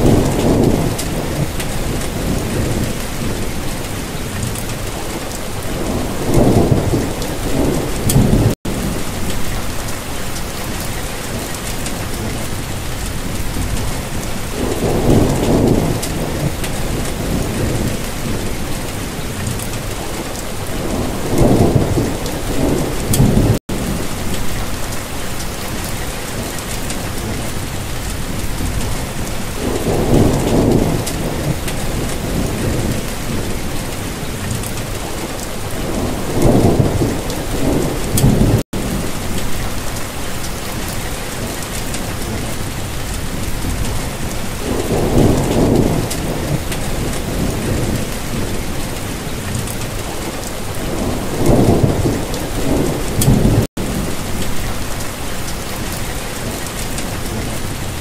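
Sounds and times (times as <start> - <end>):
low rolls of thunder: 0.0 - 10.0, 10.6 - 25.0, 26.3 - 40.0, 41.4 - 55.1
steady rain: 0.0 - 58.0.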